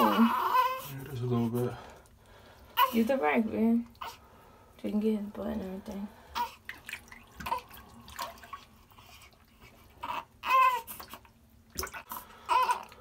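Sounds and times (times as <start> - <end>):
newborn crying: 0.0 - 1.5, 2.8 - 3.2, 6.3 - 6.7, 9.8 - 11.3, 12.0 - 13.0
water splashing in a sink: 6.6 - 9.6, 10.8 - 12.2.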